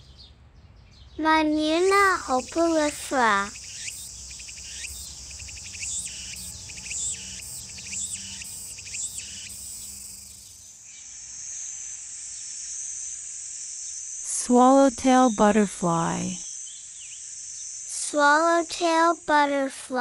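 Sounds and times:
cicada singing: 1.6 - 19.5
steady high hiss: 1.7 - 14.8.

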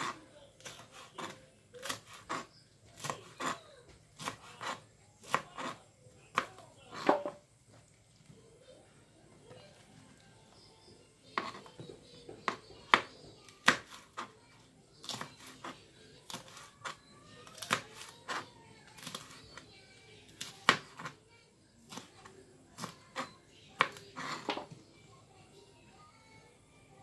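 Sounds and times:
knife chopping on plastic board: 0.0 - 3.6, 4.2 - 7.4, 11.3 - 14.3, 15.0 - 19.4, 20.4 - 21.2, 22.8 - 24.8.

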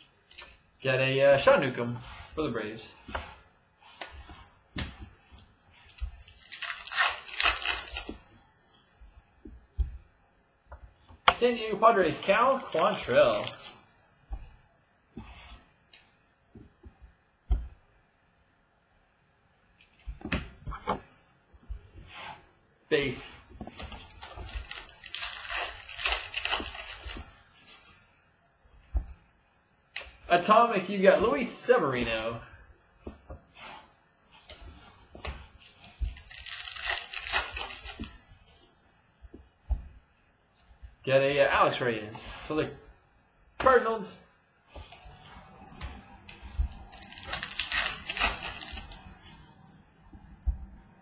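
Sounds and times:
glossy cards rustling: 2.9 - 14.6, 23.0 - 28.1, 34.5 - 38.7, 44.9 - 50.7
card sliding rustle: 12.0 - 14.5, 44.8 - 49.5.

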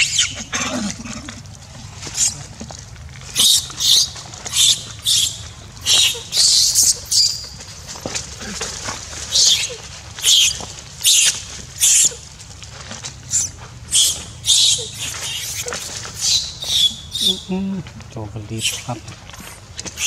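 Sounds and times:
monkey screaming: 0.0 - 1.2, 3.3 - 7.5, 9.3 - 12.2, 13.3 - 17.5, 18.6 - 20.0.

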